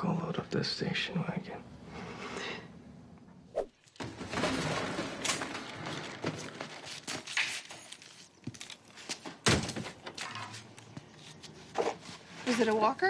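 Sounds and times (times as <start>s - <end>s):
boxes and mop crashing over: 3.9s - 7.7s, 9.2s - 10.4s.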